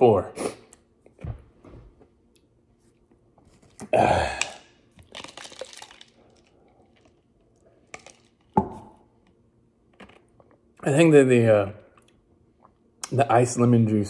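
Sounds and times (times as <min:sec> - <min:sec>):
man making guttural throat noise: 0:03.9 - 0:04.6
ice rattling in plastic cup: 0:05.0 - 0:07.2, 0:07.9 - 0:08.5.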